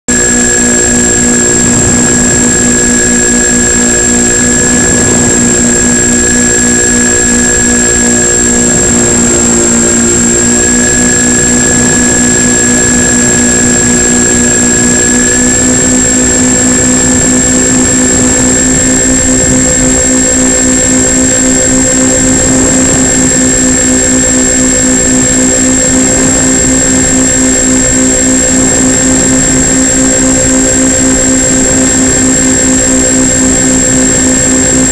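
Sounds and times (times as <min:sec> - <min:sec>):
high-pitched whine: 0:00.1 - 0:34.9
model plane motors droning: 0:00.1 - 0:34.9.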